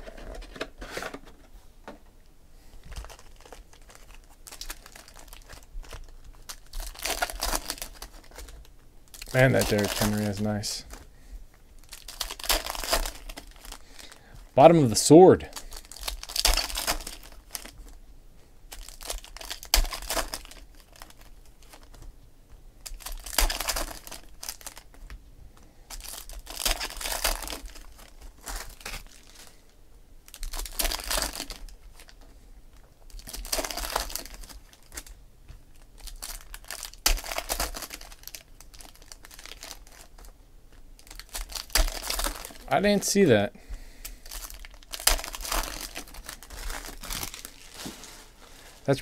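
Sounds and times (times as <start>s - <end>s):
cards rustling and sliding: 0.0s - 1.5s
foil packs crinkling and tearing: 2.8s - 11.1s, 11.8s - 18.0s, 18.7s - 22.0s, 22.8s - 25.2s, 25.9s - 43.4s, 44.0s - 49.0s.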